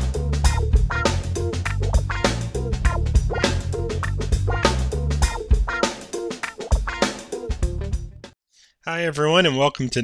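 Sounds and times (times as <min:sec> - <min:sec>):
heavy bass line: 0:00.0 - 0:05.5
steady drum beat: 0:00.0 - 0:08.3.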